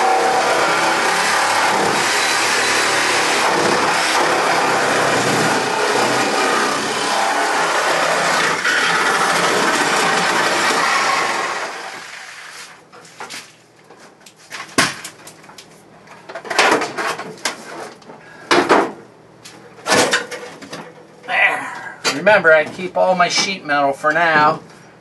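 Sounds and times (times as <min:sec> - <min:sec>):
power tool cutting sheet metal: 0:00.0 - 0:12.1.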